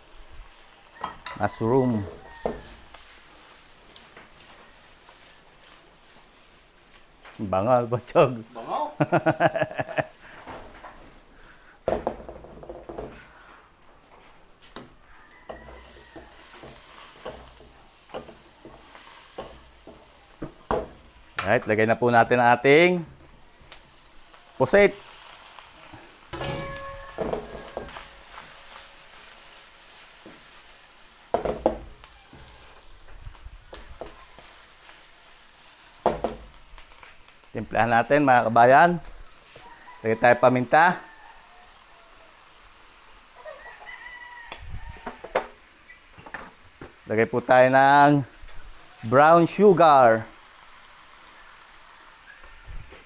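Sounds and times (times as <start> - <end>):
vegetables sizzling in oil: 0.0 - 53.0
wooden spatula scraping a wok: 1.0 - 7.5, 13.1 - 21.8, 24.0 - 35.9.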